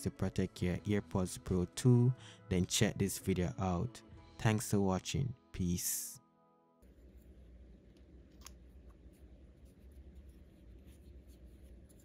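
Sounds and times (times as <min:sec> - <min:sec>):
steady low hum: 0:06.8 - 0:12.0.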